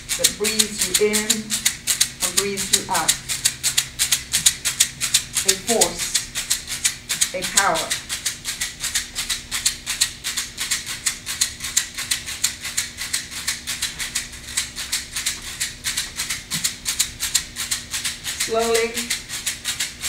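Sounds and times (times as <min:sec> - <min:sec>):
hand rattle shaken: 0:00.0 - 0:20.0.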